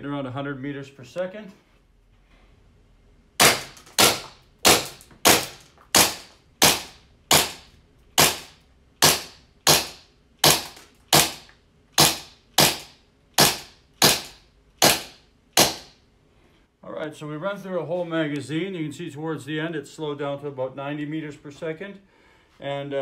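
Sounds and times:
airsoft pistol shots: 3.4 - 15.9.

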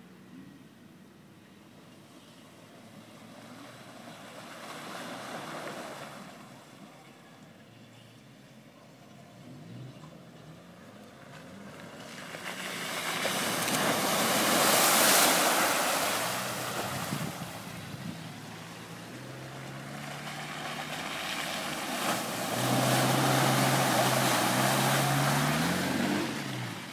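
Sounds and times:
tyres splashing through mud: 3.0 - 6.8, 10.9 - 26.9
engine running under load: 9.4 - 26.9.

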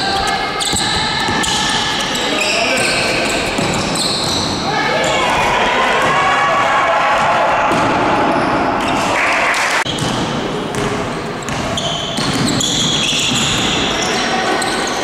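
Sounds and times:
shoe squeaks: 0.0 - 5.2, 11.4 - 15.0
players' voices: 0.0 - 9.9, 12.6 - 15.0.

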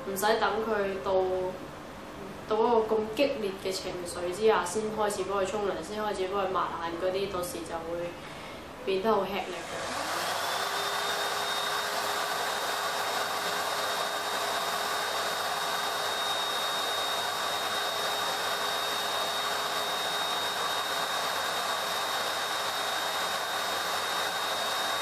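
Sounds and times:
pet dryer blowing air: 9.6 - 25.0.

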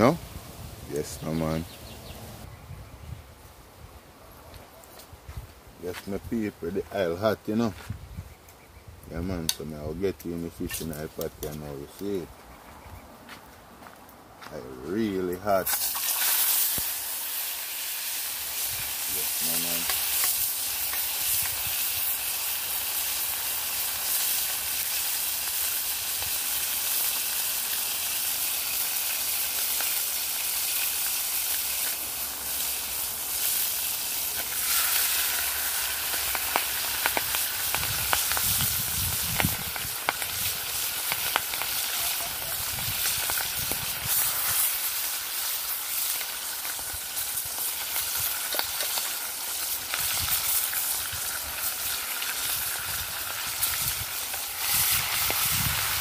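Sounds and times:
fish frying in oil: 15.7 - 56.0.

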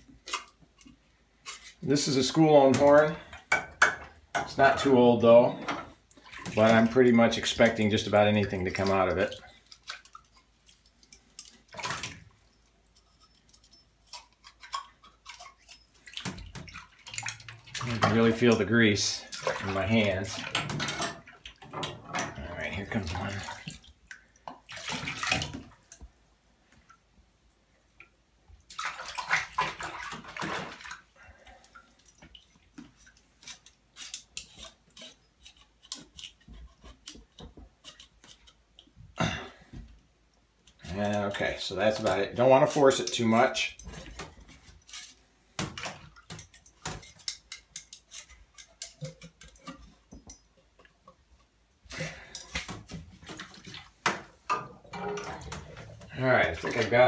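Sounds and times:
bathwater splashing and sloshing: 0.0 - 57.0
metal parts clinking in water: 6.4 - 23.7, 45.8 - 50.8, 54.5 - 57.0.

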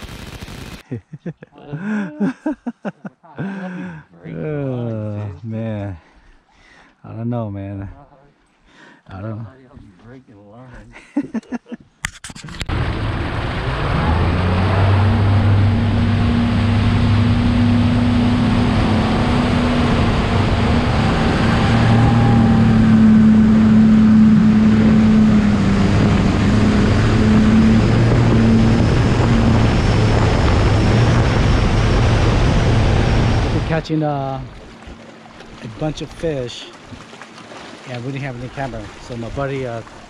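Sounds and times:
wind on microphone: 12.5 - 33.9
outboard motor droning: 12.6 - 40.0.

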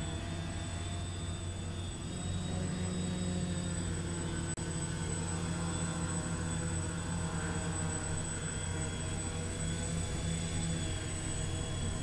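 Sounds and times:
drone motors humming: 0.0 - 12.0
thin high whine: 0.0 - 12.0.

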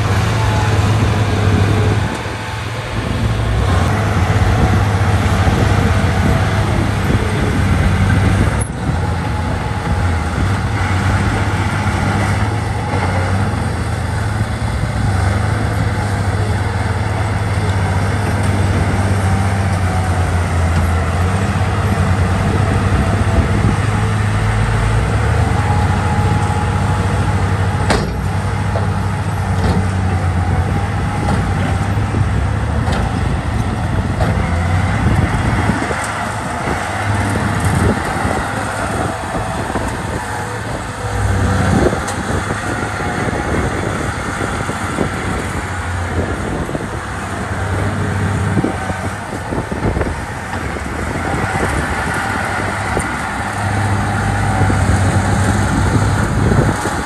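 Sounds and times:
bulldozer diesel engine droning: 0.0 - 57.0.

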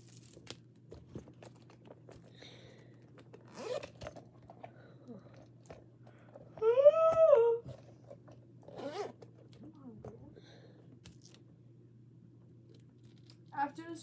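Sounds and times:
hands handling small objects: 0.0 - 6.6, 11.0 - 11.5, 12.6 - 13.6
low steady hum: 0.0 - 14.0
breathy sound: 2.3 - 3.1, 10.3 - 10.9.

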